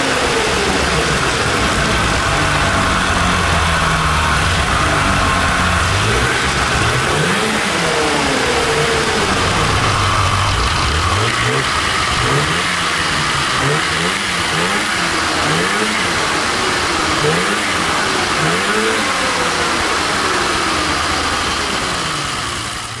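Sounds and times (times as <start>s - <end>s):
drive belt spinning: 0.0s - 23.0s
snowmobile engine revving: 0.0s - 23.0s.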